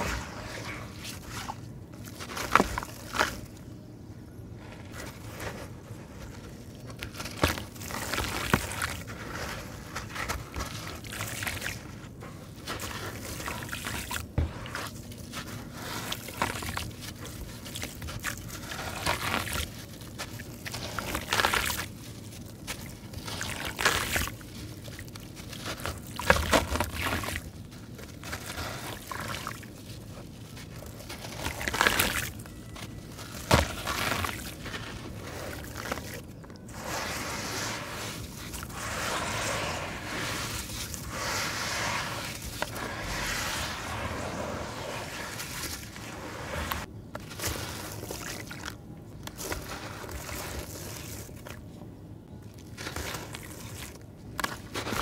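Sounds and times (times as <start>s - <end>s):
wet sand chunks crunching: 0.0s - 3.7s, 4.6s - 51.8s, 52.4s - 55.0s
grit trickling into water: 12.6s - 51.7s, 52.5s - 55.0s.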